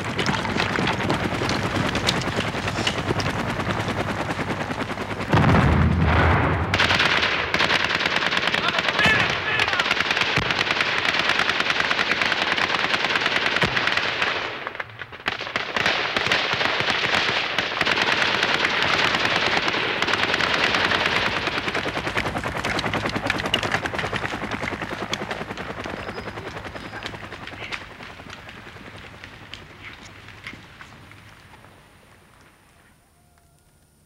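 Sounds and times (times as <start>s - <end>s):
automatic gunfire: 5.5s - 24.9s.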